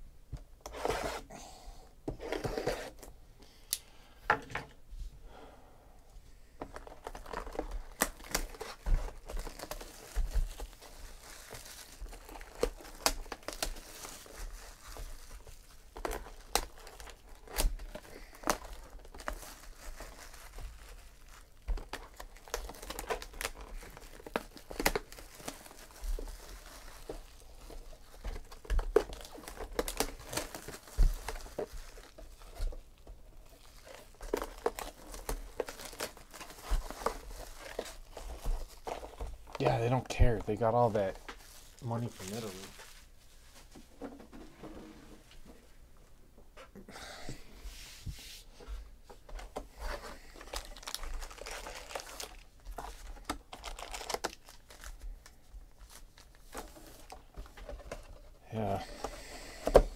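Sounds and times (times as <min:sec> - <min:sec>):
shrink-wrap tearing and crinkling: 0:06.7 - 0:43.1, 0:49.8 - 0:59.9.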